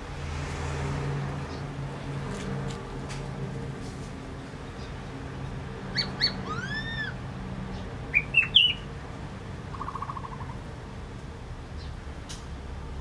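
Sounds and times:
bird whistling call: 0:06.0 - 0:07.2, 0:08.2 - 0:08.8.

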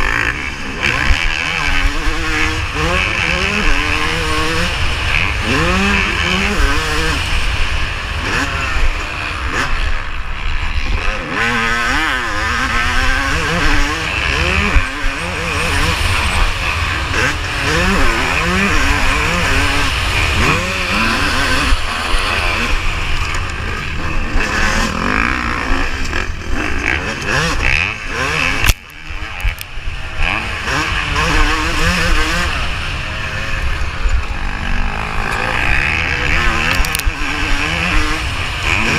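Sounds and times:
motocross engine revving: 0:00.0 - 0:38.9.

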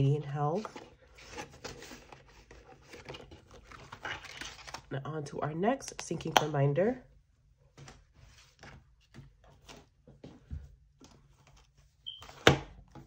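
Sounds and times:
plastic envelopes rustling: 0:00.5 - 0:04.9.

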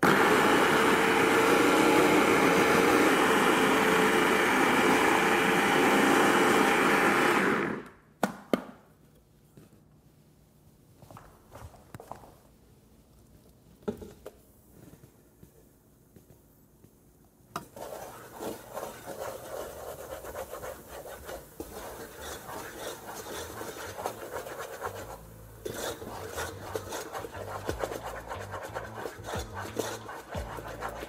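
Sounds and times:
wooden spatula scraping a pot: 0:17.7 - 0:31.0.

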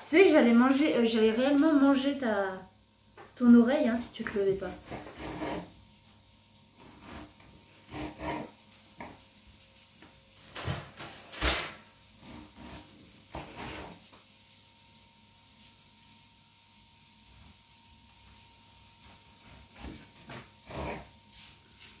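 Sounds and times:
knocks and scrapes on kitchen counter: 0:10.5 - 0:14.2.

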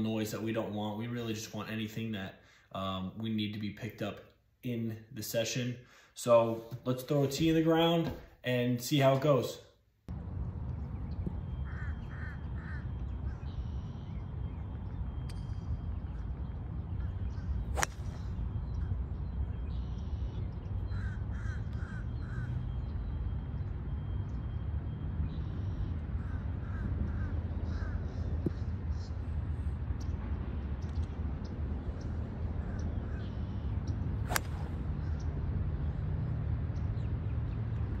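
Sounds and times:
road traffic rumble: 0:10.1 - 0:38.0
bird calling: 0:10.9 - 0:23.3, 0:25.3 - 0:29.3, 0:31.9 - 0:35.4
golf club hitting ball: 0:17.7 - 0:18.3, 0:34.2 - 0:35.0.

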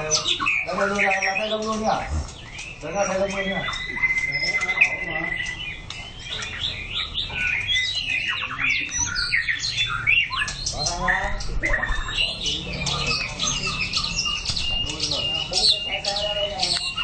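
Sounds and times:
songbird singing: 0:00.0 - 0:17.0.

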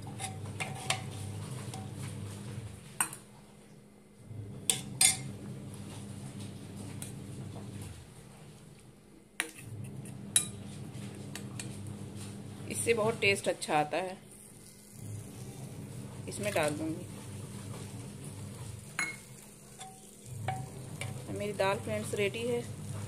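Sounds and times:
ladle scraping metal pot: 0:00.0 - 0:02.0, 0:14.6 - 0:23.0
low background hum: 0:00.0 - 0:23.0.

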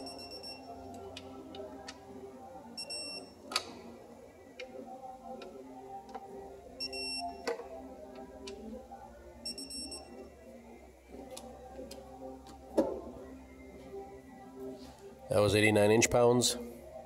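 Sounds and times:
torque wrench beeping: 0:00.0 - 0:00.7.

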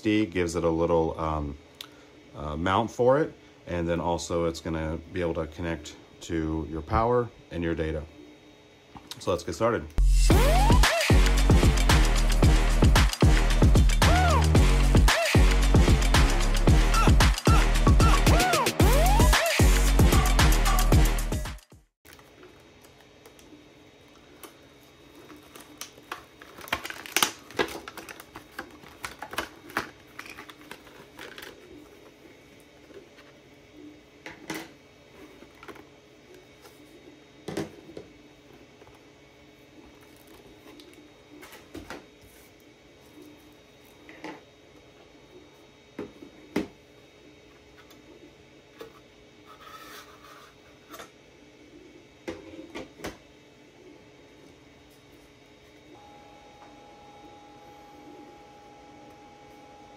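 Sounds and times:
faint steady hum: 0:00.0 - 0:10.7, 0:22.1 - 0:59.9
plastic packaging crinkling: 0:22.1 - 0:23.4, 0:24.2 - 0:32.0.

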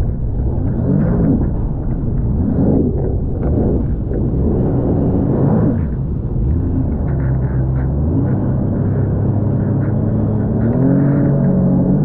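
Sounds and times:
jet ski engine running: 0:00.0 - 0:12.0
water rushing around hull: 0:00.0 - 0:12.0.

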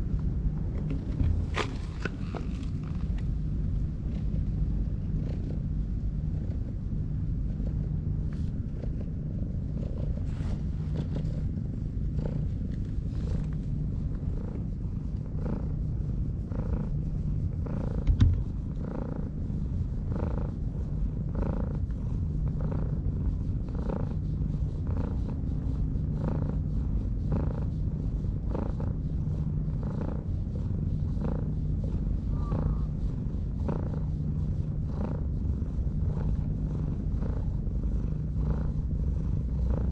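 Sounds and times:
cat purring: 0:00.9 - 0:39.9
short thump: 0:18.0 - 0:18.4.

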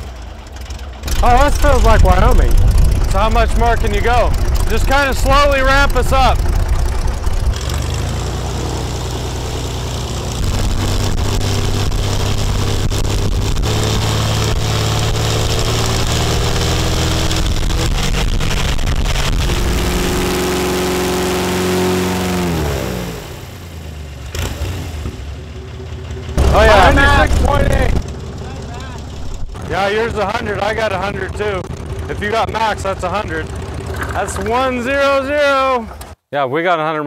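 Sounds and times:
airboat engine and propeller: 0:00.0 - 0:36.2
wind on microphone: 0:01.8 - 0:04.7.

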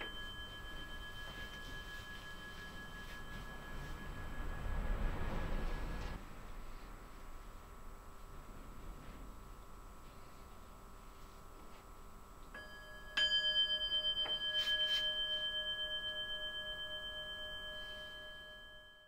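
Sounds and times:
small metal bell ringing: 0:00.0 - 0:06.2, 0:12.6 - 0:19.0.

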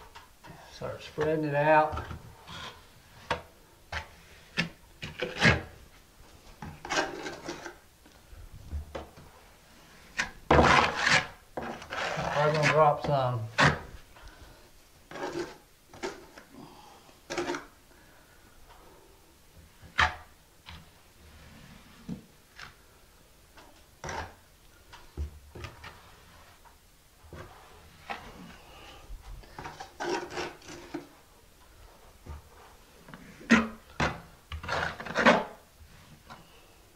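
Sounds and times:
trowel scraping mortar: 0:10.1 - 0:13.9, 0:15.1 - 0:16.1, 0:29.6 - 0:31.1.

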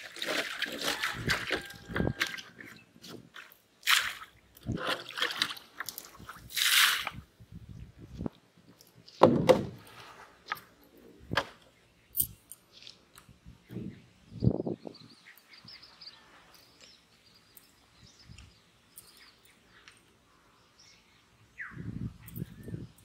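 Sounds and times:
water sloshing: 0:00.0 - 0:07.2
water splashing onto a pond: 0:00.0 - 0:07.3.

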